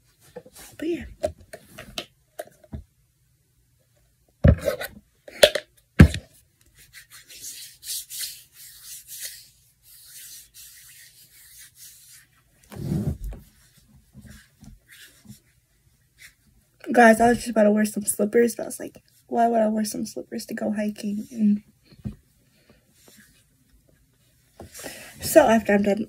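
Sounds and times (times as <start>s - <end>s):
hands rubbing: 6.7s - 16.4s.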